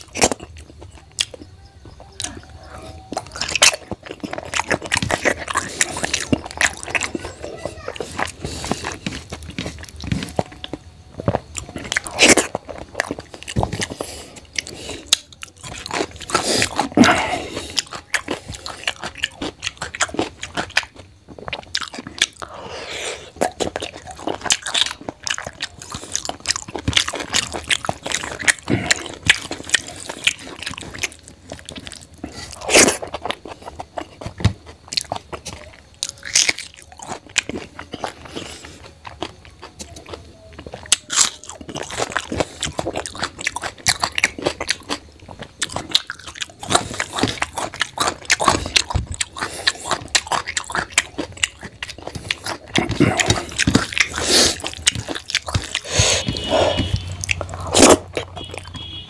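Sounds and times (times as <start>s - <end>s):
person chewing: 0.0s - 59.0s
mouth clicks: 45.6s - 59.0s.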